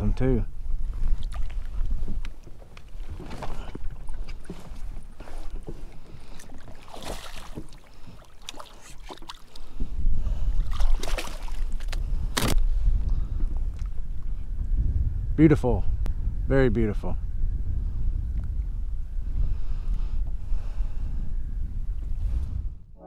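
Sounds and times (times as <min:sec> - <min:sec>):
wind rumbling on microphone: 0:00.0 - 0:23.0
water splashes: 0:05.9 - 0:09.8, 0:10.5 - 0:12.5.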